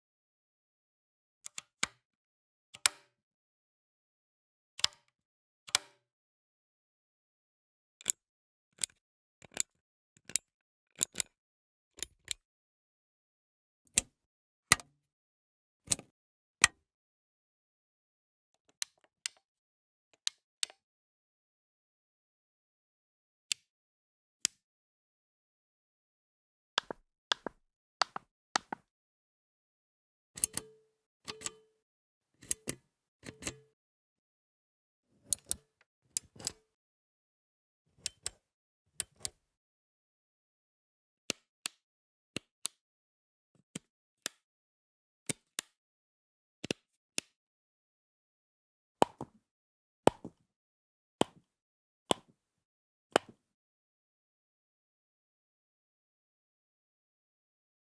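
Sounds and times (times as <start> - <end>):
toggle switch clicking: 30.4 - 30.7, 31.3 - 31.6.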